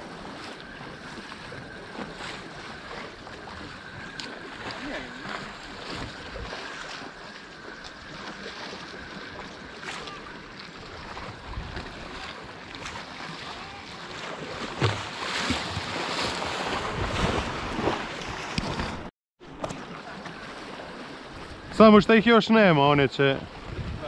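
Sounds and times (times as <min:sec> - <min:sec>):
water lapping at shore: 0:00.0 - 0:24.0
wind noise on microphone: 0:11.0 - 0:13.0, 0:23.4 - 0:24.0.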